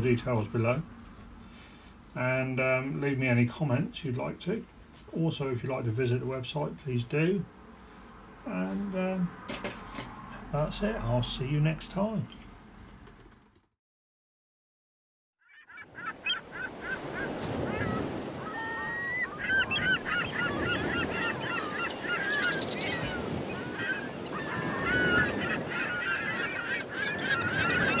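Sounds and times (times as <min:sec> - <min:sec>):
flock of birds calling: 0:15.4 - 0:28.0.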